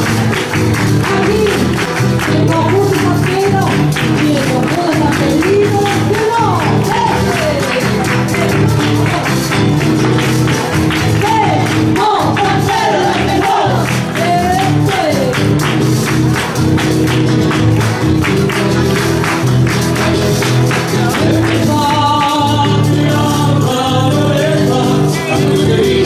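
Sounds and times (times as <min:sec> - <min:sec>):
voices singing: 0:10.6 - 0:15.4, 0:20.8 - 0:26.0.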